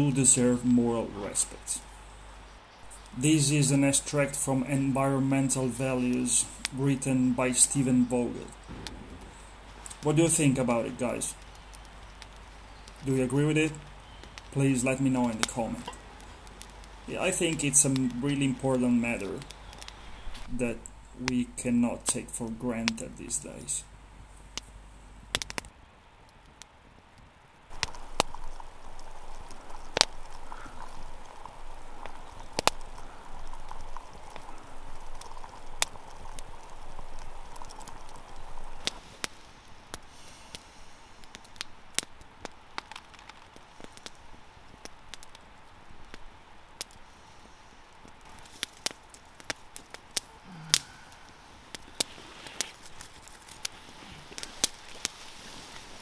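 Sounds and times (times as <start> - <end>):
campfire crackling and popping: 0.0 - 56.0
soft steady hiss: 0.0 - 56.0.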